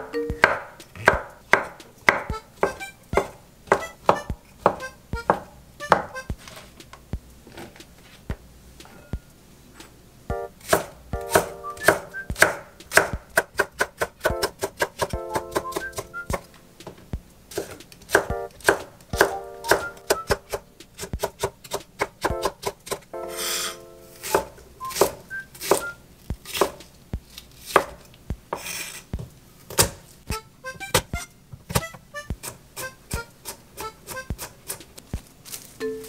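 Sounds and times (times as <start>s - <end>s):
soft background music: 0.0s - 6.5s, 10.3s - 13.2s, 14.3s - 17.3s, 18.2s - 21.0s, 22.3s - 26.0s, 35.8s - 36.0s
knife chopping on wooden board: 0.4s - 6.3s, 10.6s - 16.4s, 17.5s - 30.0s.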